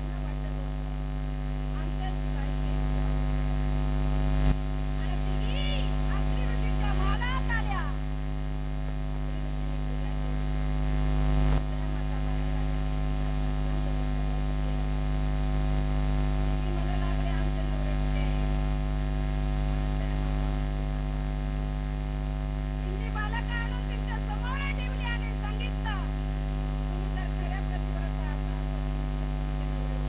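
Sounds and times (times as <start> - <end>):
electrical mains hum and buzz: 0.0 - 30.0
faint voices: 26.9 - 30.0.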